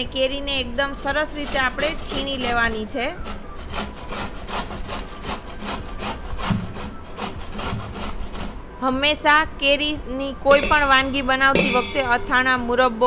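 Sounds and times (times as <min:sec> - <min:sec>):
mango scraped on a metal grater: 0:00.5 - 0:08.8.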